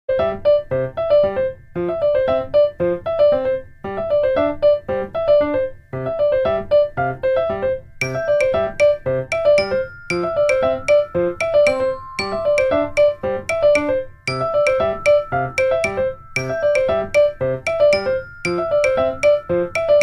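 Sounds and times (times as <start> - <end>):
crisp clicking beat: 8.0 - 20.0.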